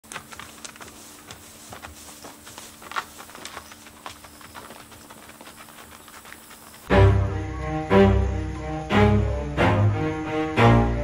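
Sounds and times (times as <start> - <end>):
hooves on gravel: 0.0 - 6.9.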